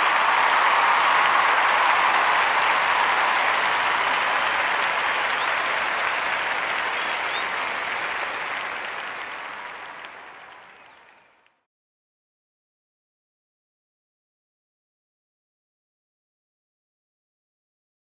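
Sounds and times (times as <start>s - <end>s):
crowd applauding: 0.0s - 11.6s.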